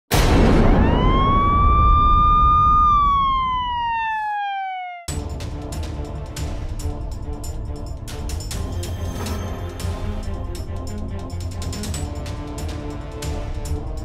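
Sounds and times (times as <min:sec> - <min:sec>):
low boom: 0:00.1 - 0:03.9
siren wail: 0:00.5 - 0:05.1
theme music with percussion hits: 0:05.1 - 0:14.0.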